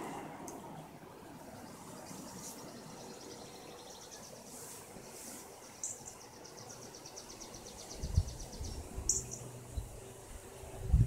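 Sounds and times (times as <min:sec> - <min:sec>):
wind buffeting microphone: 0:07.9 - 0:09.1, 0:09.7 - 0:11.0.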